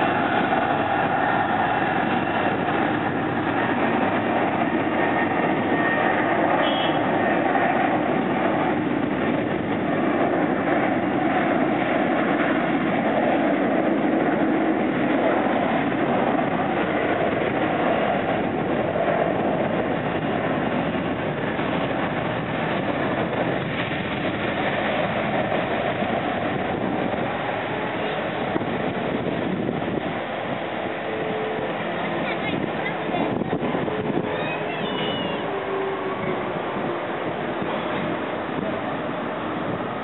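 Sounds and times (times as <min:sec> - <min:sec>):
jet engines at takeoff power: 0:00.0 - 0:40.0.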